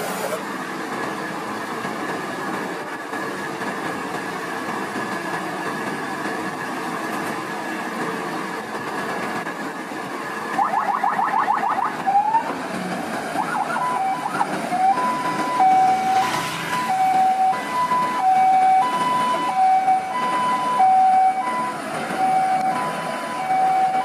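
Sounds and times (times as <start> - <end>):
electronic siren: 10.6 - 12.5, 13.3 - 24.0.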